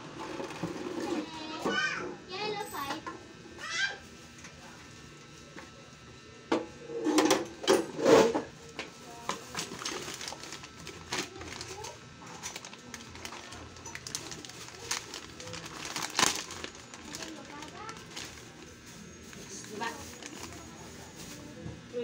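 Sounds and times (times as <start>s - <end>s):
plastic packaging crinkling: 9.1s - 21.5s.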